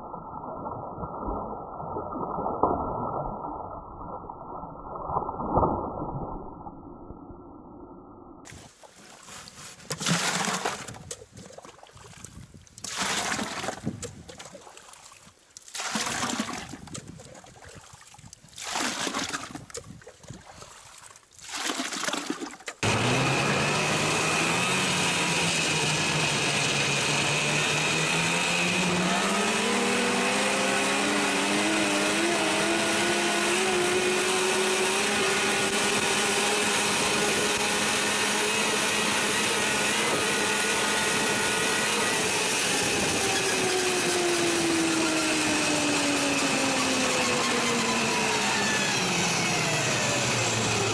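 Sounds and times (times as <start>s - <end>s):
shovel scraping snow: 8.6s - 10.8s
snowmobile engine: 22.8s - 50.9s.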